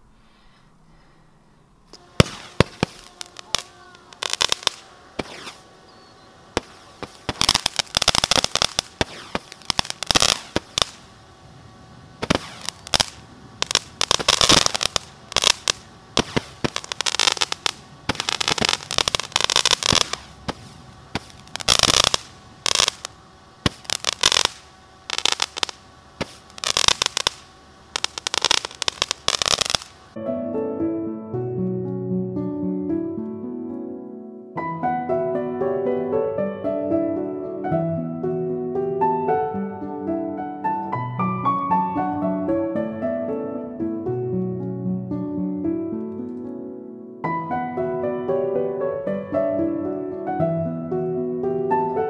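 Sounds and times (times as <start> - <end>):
fireworks pops and crackling: 2.0 - 5.6, 6.6 - 11.1, 12.2 - 30.2.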